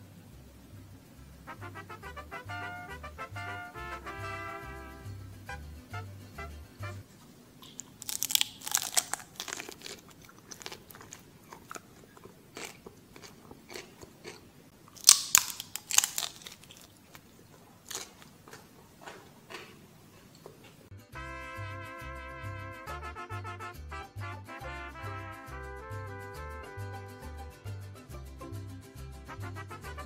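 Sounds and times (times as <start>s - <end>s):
crunchy food being chewed: 7.1s - 20.9s.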